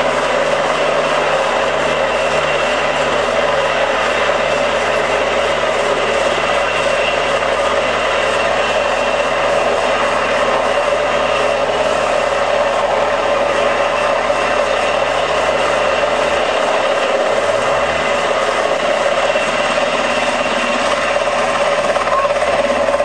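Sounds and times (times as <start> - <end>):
low hum: 4.6 - 7.2.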